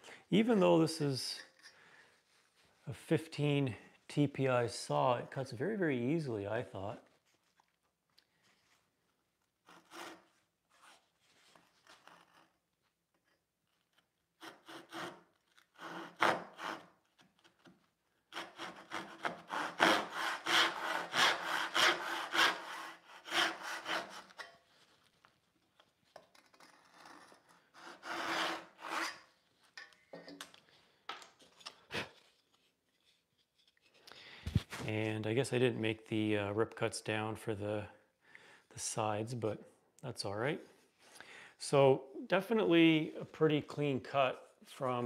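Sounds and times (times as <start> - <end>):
handsaw rasping through wood: 14.4 - 16.9, 18.3 - 24.5, 27.7 - 29.2.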